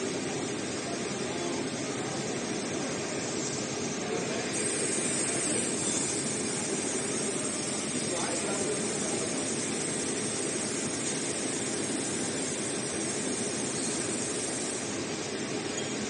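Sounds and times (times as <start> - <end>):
high hiss: 0.9 - 16.0
sewing machine droning: 3.7 - 16.0.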